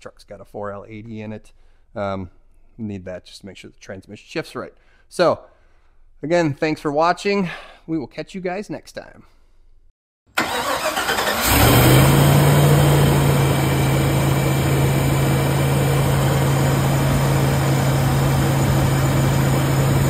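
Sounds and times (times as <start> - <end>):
engine cranking and starting: 10.4 - 13.6
engine idling: 10.4 - 20.0.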